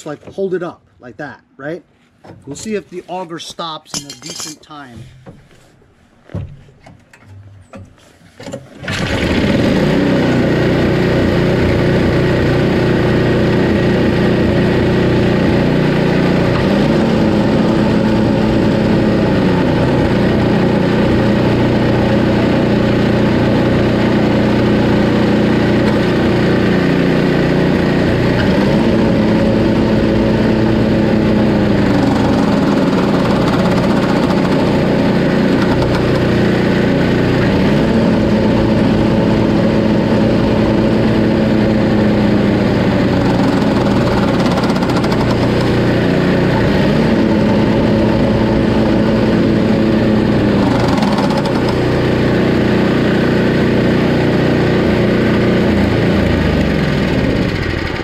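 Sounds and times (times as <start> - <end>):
auger drive hum: 7.0 - 54.0
snowblower engine running: 8.8 - 58.0.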